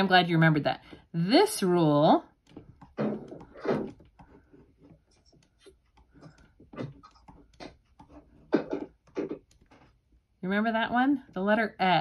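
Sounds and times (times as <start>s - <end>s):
writing scratches on board: 3.0s - 10.0s.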